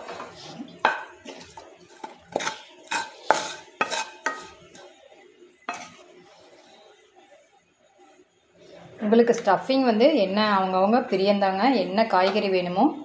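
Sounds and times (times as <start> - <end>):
spatula scraping frying pan: 0.0 - 5.0, 5.6 - 6.9.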